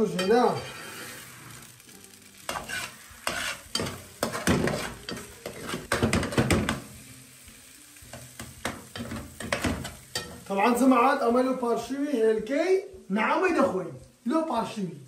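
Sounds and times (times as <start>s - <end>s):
eggs sizzling: 0.0s - 15.0s
metal spoon scraping frying pan: 0.2s - 1.6s, 2.5s - 6.6s.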